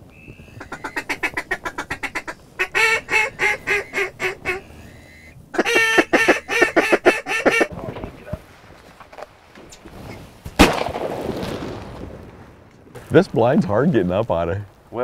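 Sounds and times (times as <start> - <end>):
duck call quacks: 0.6 - 7.7.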